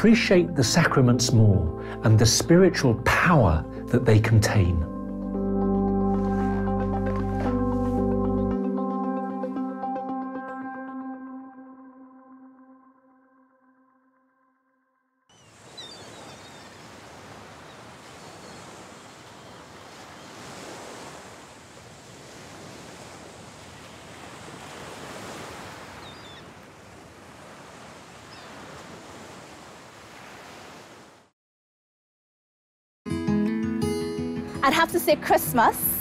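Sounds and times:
faint gull calls: 0:15.3 - 0:20.4, 0:25.8 - 0:26.6
sea waves washing onto shore: 0:15.5 - 0:31.2.

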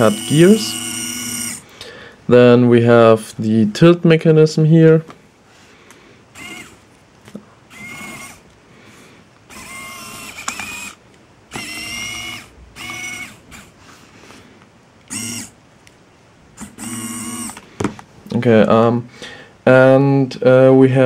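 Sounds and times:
geared motor whining: 0:00.0 - 0:01.7, 0:06.3 - 0:06.8, 0:07.7 - 0:08.5, 0:09.5 - 0:13.8, 0:15.1 - 0:15.6, 0:16.6 - 0:17.6.

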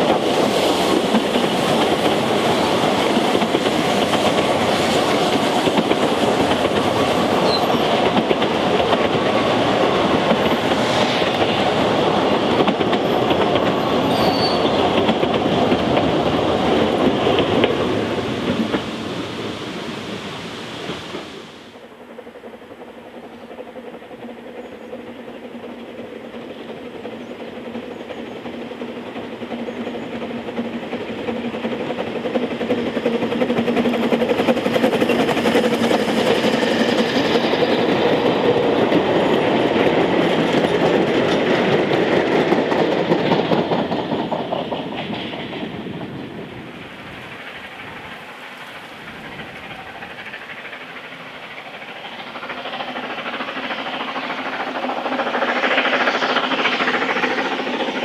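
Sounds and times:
steam train passing: 0:00.0 - 0:58.0.

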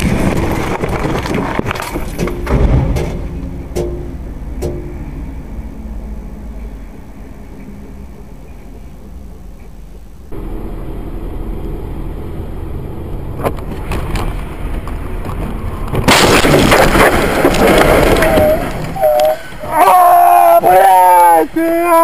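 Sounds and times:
car driving noise: 0:00.0 - 0:22.0
sharp knocks: 0:02.0 - 0:05.0.

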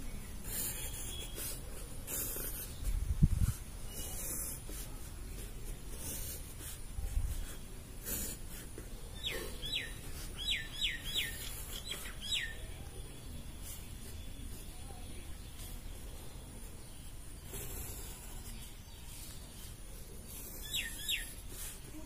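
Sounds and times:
bird chirping: 0:00.0 - 0:06.3, 0:07.4 - 0:22.0
pencil scratching on paper: 0:00.4 - 0:10.4.

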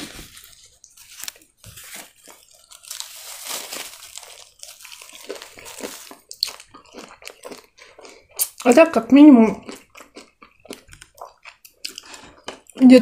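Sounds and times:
paper napkin crinkling: 0:00.0 - 0:06.3
crunching bites: 0:02.0 - 0:08.7, 0:09.6 - 0:12.9
chewing: 0:02.1 - 0:08.7, 0:09.4 - 0:13.0.

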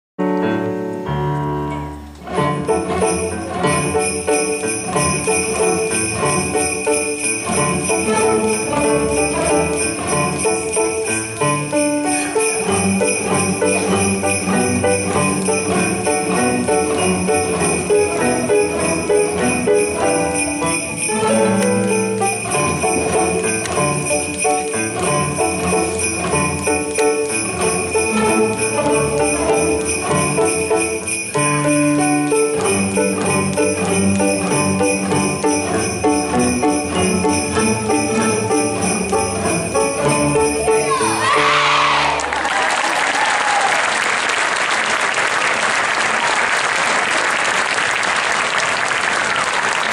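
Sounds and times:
string orchestra playing: 0:00.6 - 0:42.5
sleigh bells shaken: 0:02.7 - 0:41.5.

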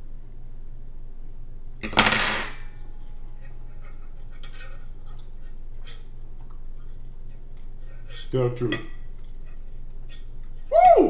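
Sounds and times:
fork clattering on plate: 0:01.8 - 0:02.7.

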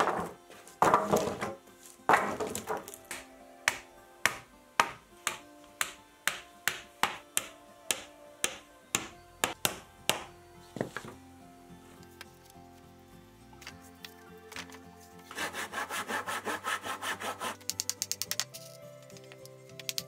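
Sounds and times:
hammer blows on wood: 0:00.0 - 0:10.4
background music: 0:00.0 - 0:20.0.

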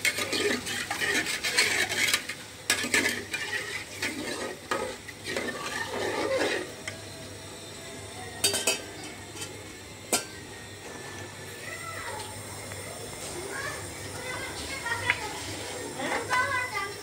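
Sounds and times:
spoon stirring and scraping pot: 0:00.0 - 0:07.0
spoon clinking against pot: 0:08.4 - 0:09.5.

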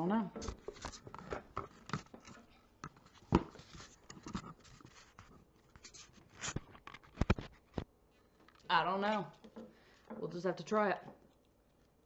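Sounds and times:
camera handling rustles: 0:00.4 - 0:07.9.

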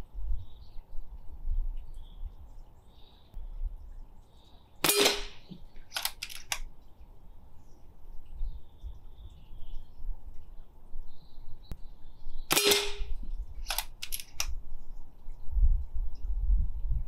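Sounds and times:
air rifle shot: 0:04.8 - 0:06.5, 0:12.5 - 0:14.5
quick clicks: 0:05.9 - 0:06.7, 0:12.5 - 0:14.6.

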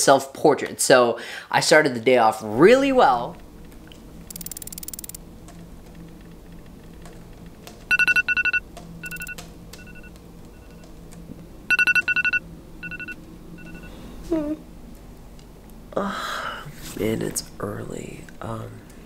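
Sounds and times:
alarm two-tone beeps: 0:07.9 - 0:10.8, 0:11.7 - 0:13.9.

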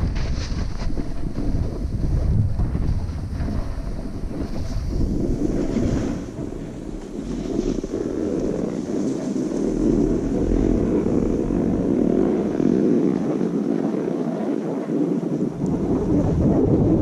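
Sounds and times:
snow scraping under skis: 0:00.0 - 0:13.5
wind buffeting microphone: 0:00.0 - 0:17.0.

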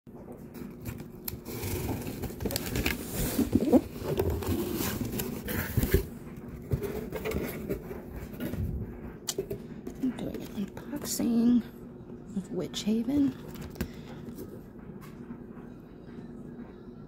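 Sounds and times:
cardboard flaps scraping: 0:01.0 - 0:08.6.

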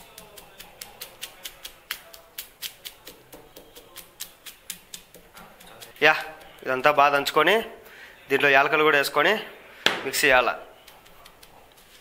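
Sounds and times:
stone pestle pounding nuts: 0:00.0 - 0:06.9.

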